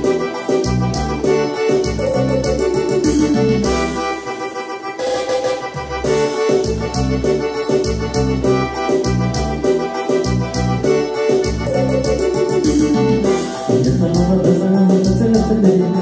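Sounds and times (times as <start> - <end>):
bass line: 0.0 - 4.4, 5.4 - 16.0
keyboard melody: 0.0 - 16.0
steady drum beat: 5.9 - 16.0.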